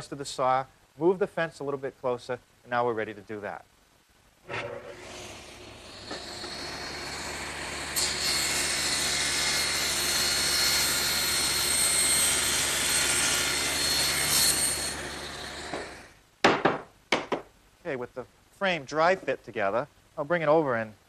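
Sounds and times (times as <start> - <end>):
table saw cutting wood: 4.5 - 16.1.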